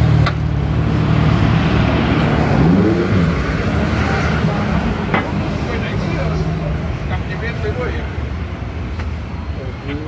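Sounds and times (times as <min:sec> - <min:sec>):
vehicle accelerating: 0:00.0 - 0:06.8
tyre and road noise: 0:00.0 - 0:10.0.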